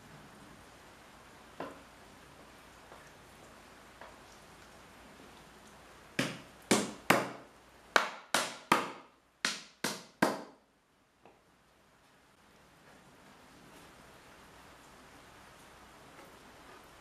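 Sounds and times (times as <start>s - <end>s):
hammer driving nails into wood: 6.2s - 7.4s.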